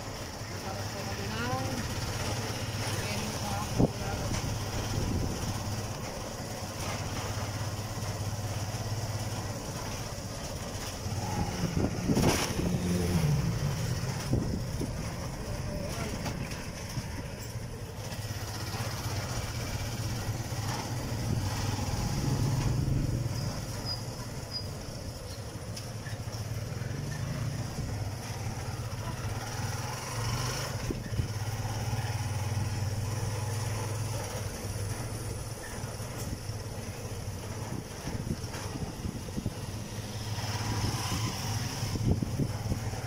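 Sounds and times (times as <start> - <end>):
motorcycle engine running: 0.0 - 43.0.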